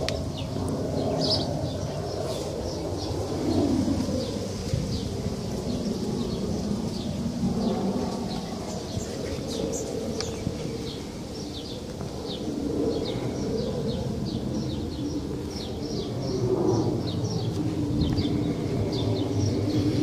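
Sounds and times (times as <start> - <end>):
small birds chirping: 0.0 - 20.0.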